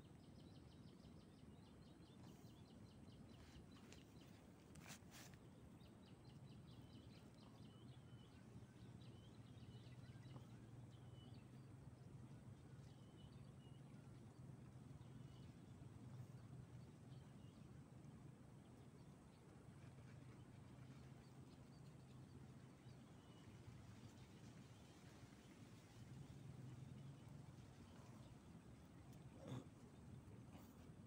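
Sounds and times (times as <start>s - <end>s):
small birds chirping: 0.0s - 17.7s
low steady hum: 0.0s - 31.0s.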